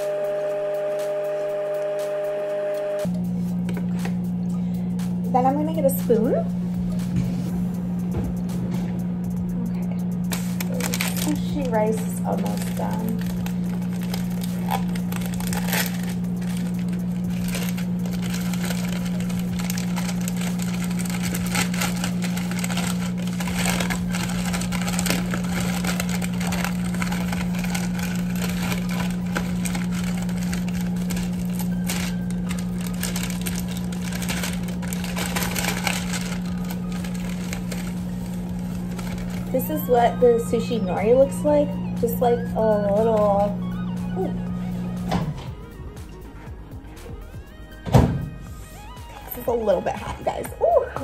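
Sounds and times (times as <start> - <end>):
microwave oven humming: 0.0 - 51.0
plastic packaging crinkling: 10.2 - 44.4.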